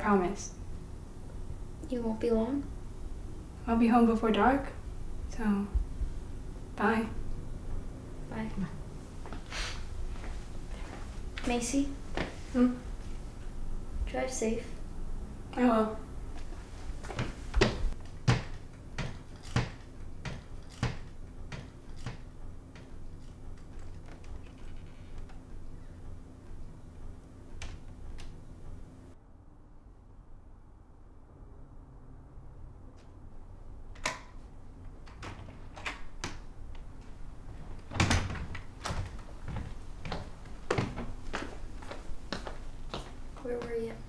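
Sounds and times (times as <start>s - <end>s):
sharp knocks: 17.2s - 22.3s
door lock clicks: 34.0s - 34.4s.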